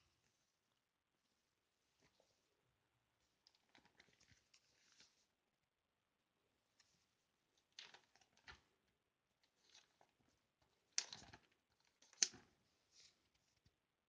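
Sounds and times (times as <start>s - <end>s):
plastic binder pages rustling: 3.3s - 5.3s, 6.8s - 8.8s, 9.4s - 13.8s.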